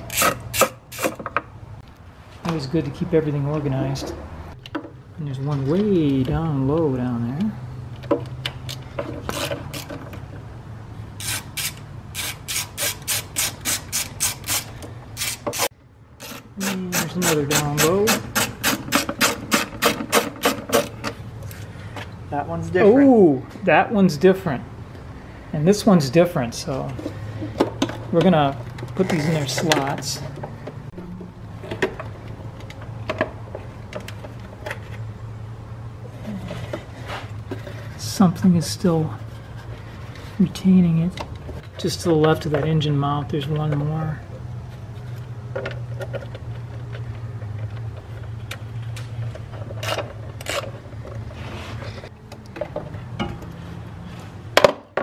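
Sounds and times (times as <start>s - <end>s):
hand ratchet pawl rasping: 11.2s - 21.0s.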